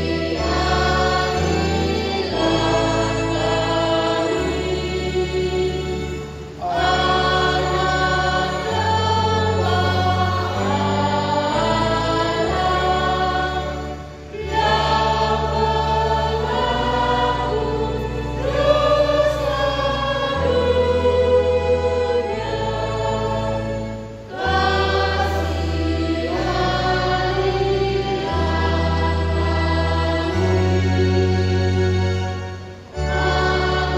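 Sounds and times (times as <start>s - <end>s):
choir singing a hymn: 0.0s - 33.9s
low held accompaniment notes: 0.0s - 33.9s.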